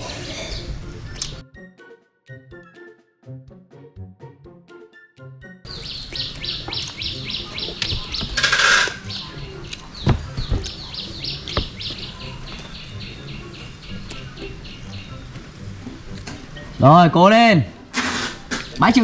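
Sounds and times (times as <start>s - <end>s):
rapid high chirping: 5.7s - 15.4s
sharp knocks: 7.4s - 9.1s, 9.9s - 12.6s.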